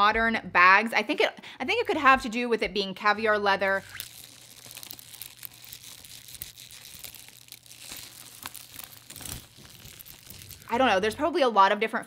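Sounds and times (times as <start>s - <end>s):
leather rustling: 3.9s - 10.8s.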